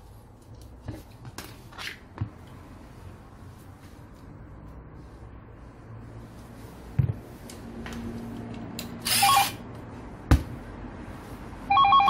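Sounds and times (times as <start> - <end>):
cordless impact driver running: 9.0 - 9.6.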